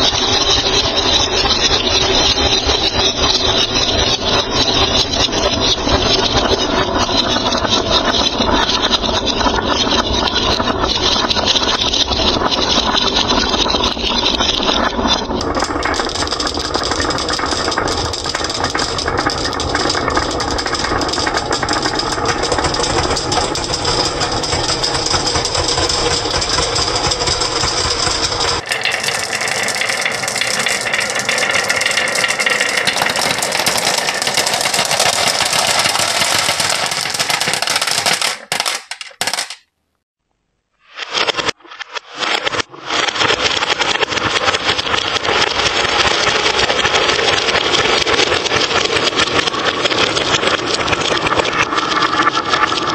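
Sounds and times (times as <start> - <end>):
marbles rolling on wooden track: 0.0 - 39.6, 41.1 - 52.9.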